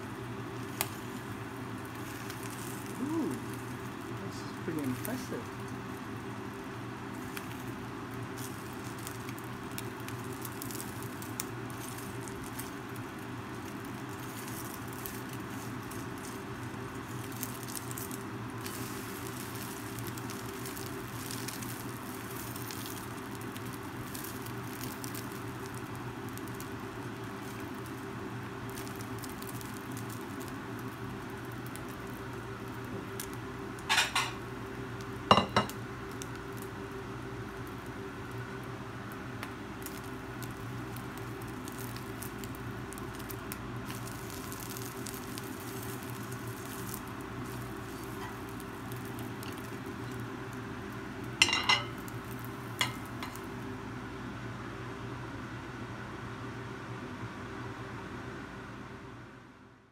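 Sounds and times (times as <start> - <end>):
egg sizzling in a pan: 0.0 - 54.0
utensil clinking on pan: 35.3 - 35.7, 51.4 - 52.0.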